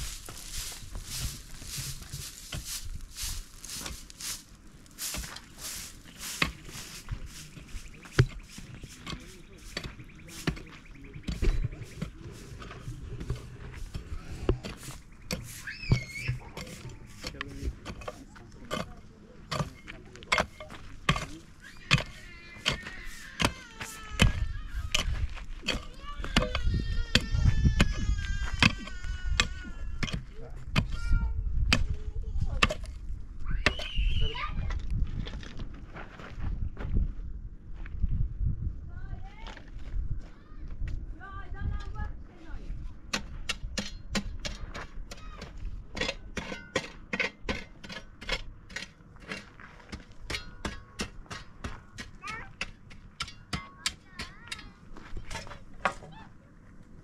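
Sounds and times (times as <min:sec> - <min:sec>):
shovel chopping into stony soil: 0:05.0 - 0:07.0, 0:13.2 - 0:27.9
pickaxe striking stony ground: 0:19.5 - 0:23.6, 0:43.1 - 0:53.9.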